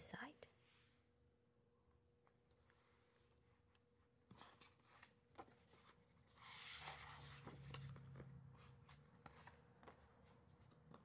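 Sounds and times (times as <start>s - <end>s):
book page turning: 4.3s - 11.0s.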